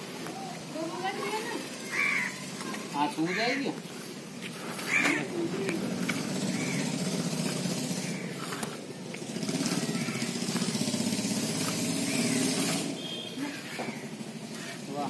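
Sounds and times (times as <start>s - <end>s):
motor droning: 4.6s - 15.0s.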